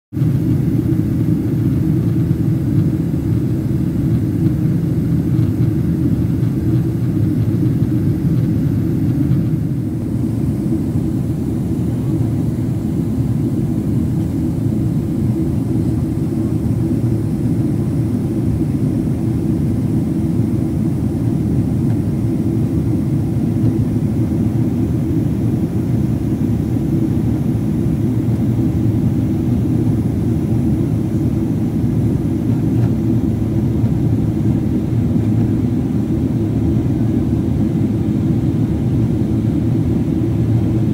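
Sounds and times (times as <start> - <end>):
airliner engines rumbling in cabin: 0.2 - 40.9.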